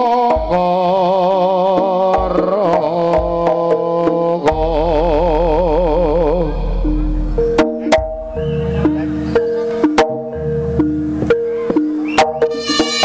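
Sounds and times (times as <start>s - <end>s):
live ensemble music: 0.0s - 13.0s
deep low sustained tone: 4.6s - 9.4s.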